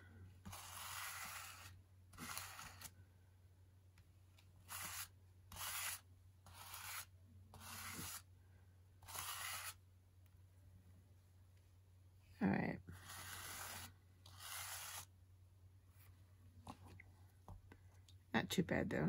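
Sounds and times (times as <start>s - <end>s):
plastic scraper scraping paste: 0.4s - 2.9s, 4.6s - 8.3s, 9.0s - 9.8s, 12.9s - 15.1s.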